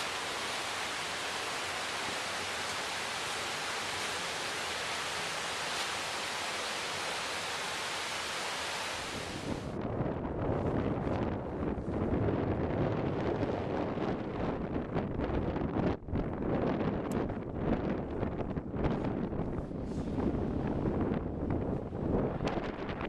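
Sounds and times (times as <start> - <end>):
rocky stream rushing: 0.0 - 9.7
wind buffeting microphone: 0.0 - 23.0.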